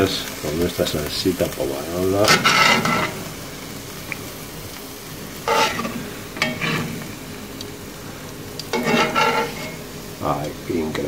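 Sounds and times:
sauce sizzling in a skillet: 0.0 - 11.0
metal tongs scraping pan: 2.2 - 3.2, 5.4 - 7.0, 8.7 - 9.8.

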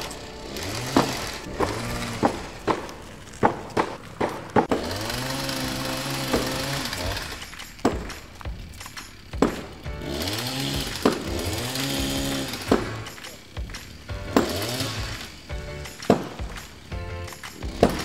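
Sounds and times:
motor hum winding up and down: 0.0 - 2.7, 4.7 - 7.5.

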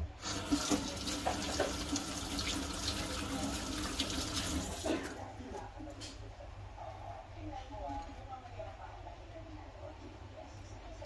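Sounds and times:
tap water running into sink: 0.2 - 5.0.

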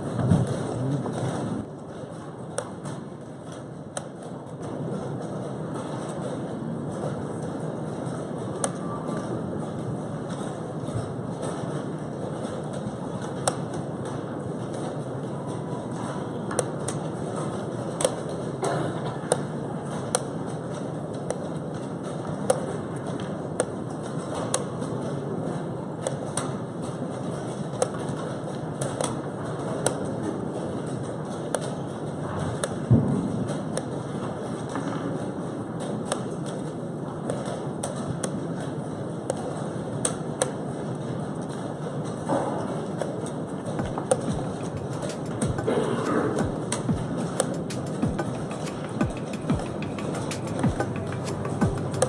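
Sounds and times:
room noise: 0.0 - 52.0
chess clock being pressed: 43.8 - 52.0
chess pieces clicking on board: 43.8 - 52.0
room noise hiss: 43.8 - 52.0.

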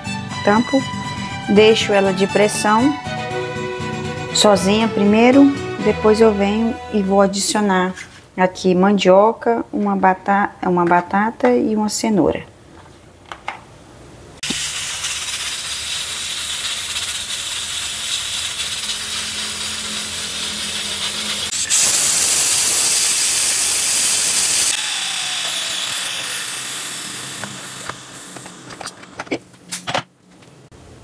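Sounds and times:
pressure cooker steam hissing: 14.4 - 28.7.

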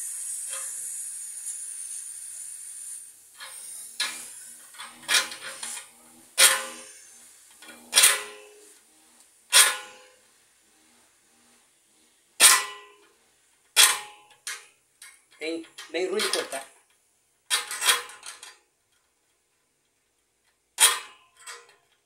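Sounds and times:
hacksaw cutting copper pipe: 0.0 - 8.7, 9.5 - 10.2, 12.4 - 12.9, 13.8 - 14.6, 17.5 - 18.5, 20.8 - 21.8
faint gas hiss: 0.0 - 17.4.

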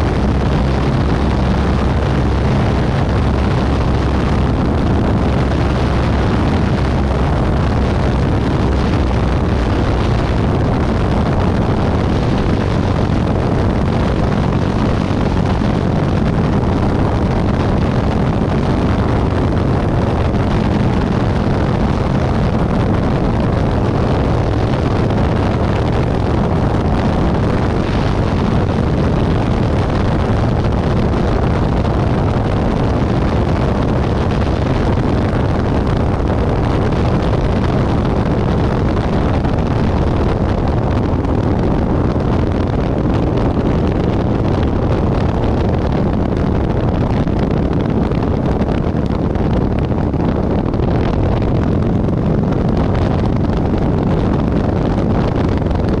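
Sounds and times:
propeller aircraft engine drone: 0.0 - 56.0
rushing airflow: 0.0 - 56.0.

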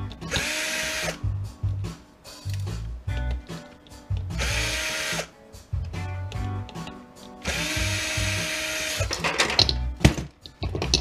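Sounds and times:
cordless drill whirring: 0.3 - 1.2, 4.4 - 5.3, 7.4 - 9.1.

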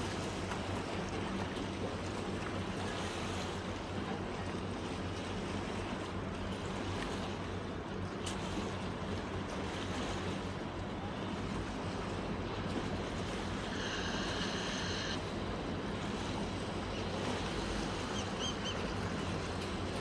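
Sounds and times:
low steady hum: 0.0 - 20.0
waves lapping: 0.0 - 20.0
high held tone: 13.7 - 15.2.

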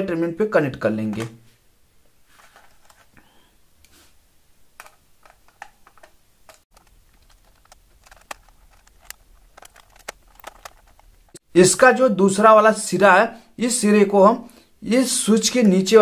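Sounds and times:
screwdriver clicking on terminals: 4.8 - 11.1.

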